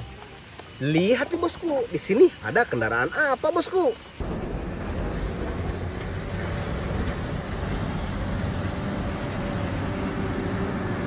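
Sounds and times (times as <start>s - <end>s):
wheel loader engine running: 4.2s - 11.0s.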